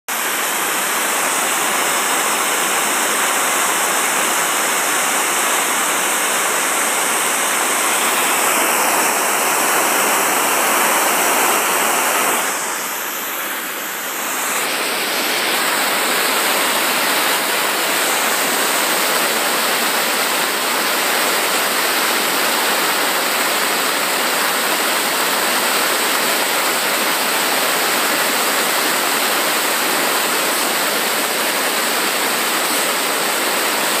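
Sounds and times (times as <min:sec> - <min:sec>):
hand torch hissing: 0:03.2 - 0:16.3.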